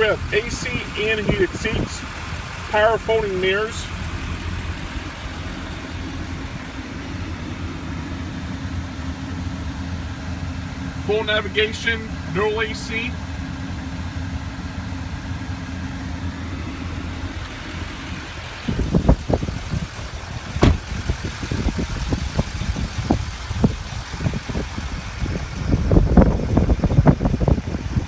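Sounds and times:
low thumps and rumbles: 0.0 - 11.0, 13.6 - 28.0
truck engine idling: 0.0 - 28.0
sharp knock: 20.6 - 20.9.

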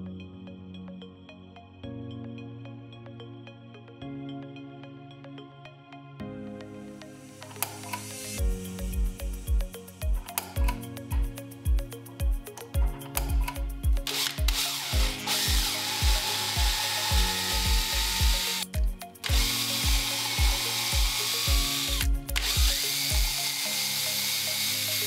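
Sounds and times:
power drill boring into wood: 14.1 - 25.0.

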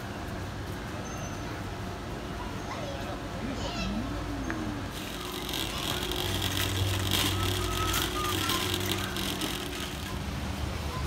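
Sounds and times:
shopping cart rolling and rattling: 4.9 - 11.0.

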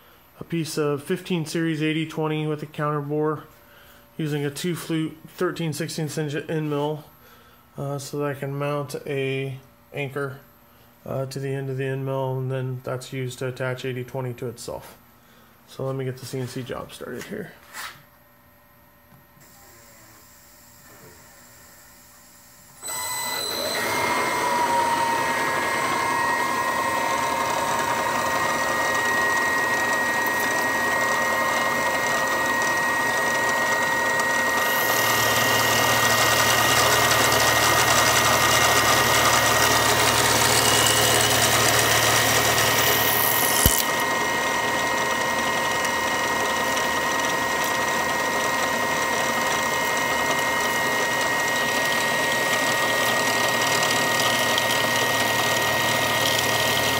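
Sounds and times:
milling machine spindle whine: 19.4 - 56.9
end mill cutting aluminum: 22.8 - 56.9
sharp click: 43.4 - 43.9.

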